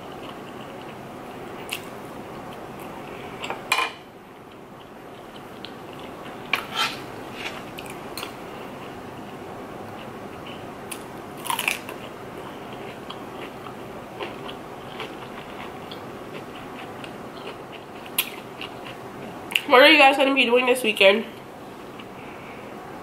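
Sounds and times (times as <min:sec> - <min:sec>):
crisp chewing crunches: 0:10.0 - 0:19.6.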